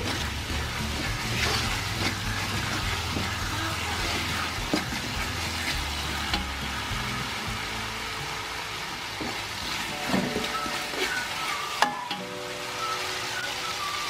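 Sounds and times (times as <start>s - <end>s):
metal spoon scraping a wok: 0.0s - 6.6s
paste sizzling in hot oil: 0.0s - 14.0s.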